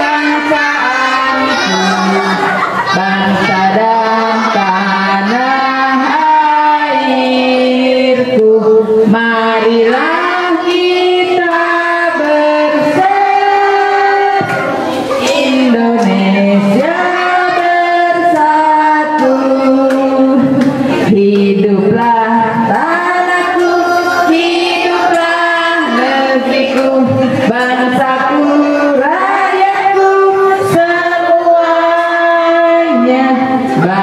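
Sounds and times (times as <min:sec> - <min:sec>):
women and children singing: 0:00.0 - 0:34.0.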